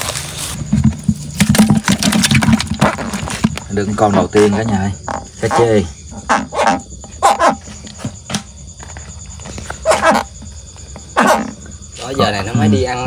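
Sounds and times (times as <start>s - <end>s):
night insects trilling: 0.0s - 13.0s
dog barking: 6.5s - 7.6s, 9.8s - 10.3s, 11.2s - 11.6s.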